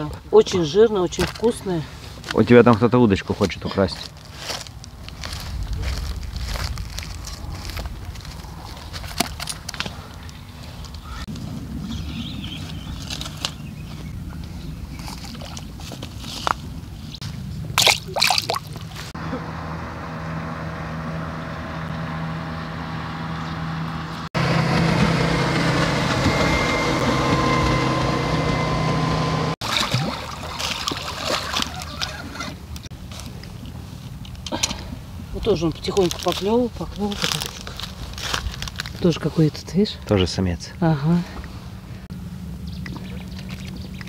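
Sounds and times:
water sloshing: 14.9 - 16.8, 17.7 - 19.2, 29.6 - 32.8.

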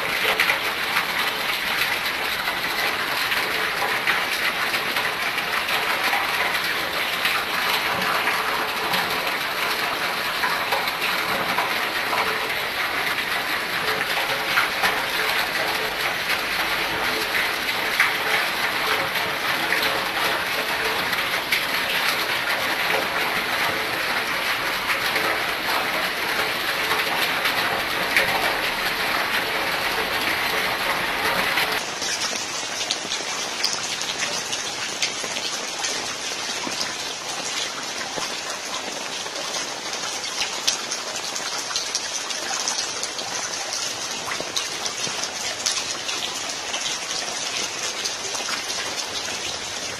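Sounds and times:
heavy rain falling: 0.0 - 49.9.

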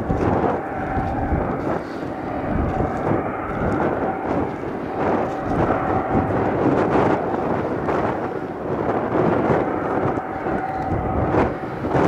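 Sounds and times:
jet engines idling: 0.0 - 12.0.

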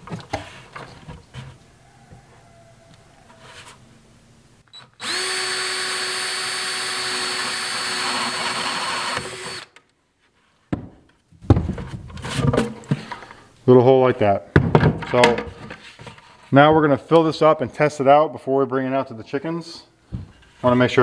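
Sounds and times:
handling of plastic bucket: 0.0 - 1.6, 11.4 - 13.3
drill boring through plastic: 5.0 - 9.8.

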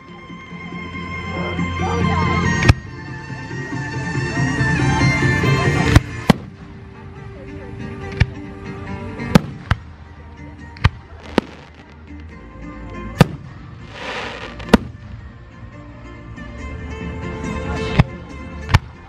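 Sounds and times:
fireworks bangs: 11.2 - 12.0, 13.2 - 15.2
fireworks hissing: 11.2 - 12.0, 13.2 - 15.2.

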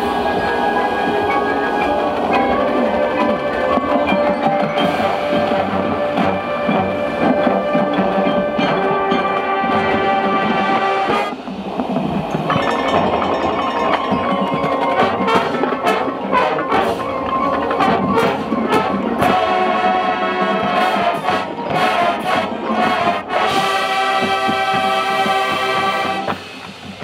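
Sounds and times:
brass chords: 0.0 - 11.8, 12.5 - 26.6
drumline percussion: 0.0 - 27.0.

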